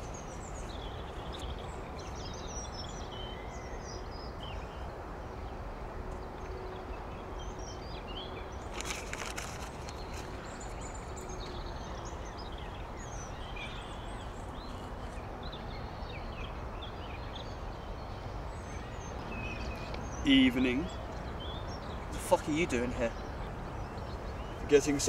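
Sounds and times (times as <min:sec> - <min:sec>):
small birds chirping: 0:00.0 - 0:25.0
brief rustle: 0:08.7 - 0:10.8.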